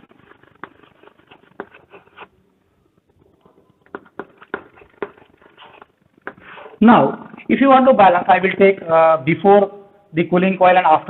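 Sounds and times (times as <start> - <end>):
chalk tapping and scratching: 0.0 - 2.3, 3.9 - 6.8.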